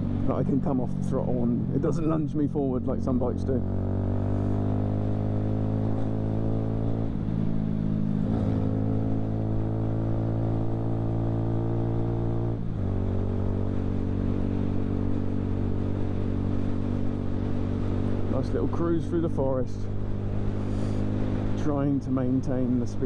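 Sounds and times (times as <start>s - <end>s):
motorcycle engine cruising: 0.0s - 23.0s.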